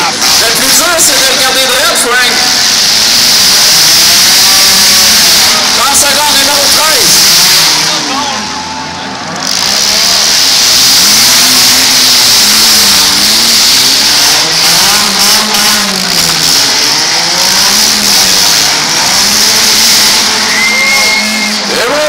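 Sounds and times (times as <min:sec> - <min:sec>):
car engines revving: 0:00.0 - 0:22.0.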